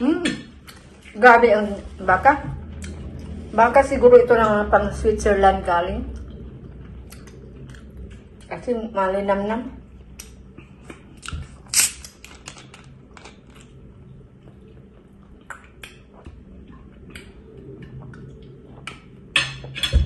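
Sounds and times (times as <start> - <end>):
quiet gulps: 14.4 - 19.2.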